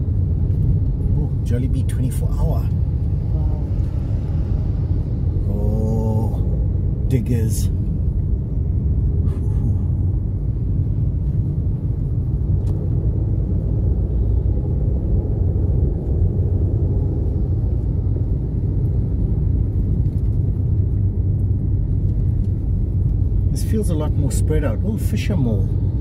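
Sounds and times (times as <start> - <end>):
car interior road and engine noise: 0.0 - 26.0.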